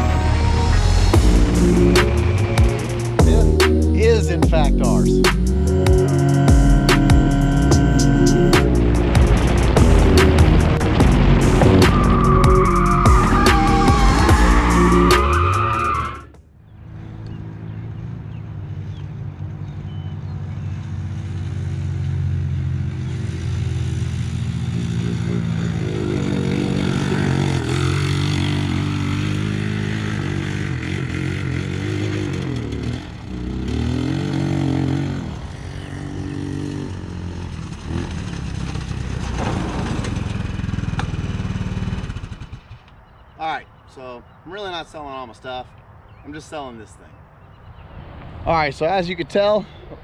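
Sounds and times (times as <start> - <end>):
go-kart engine revving: 8.4 - 16.1, 20.5 - 43.0.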